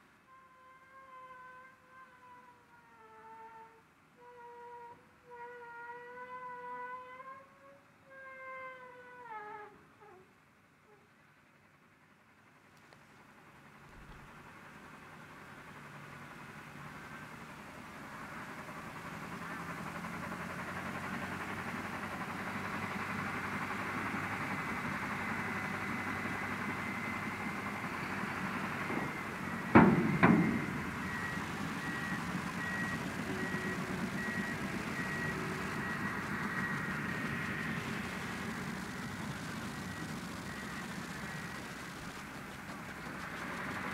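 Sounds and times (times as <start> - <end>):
heavy diesel machinery running: 11.4 - 43.9
reversing alarm beeping: 24.0 - 41.8
loud bangs: 26.6 - 43.7.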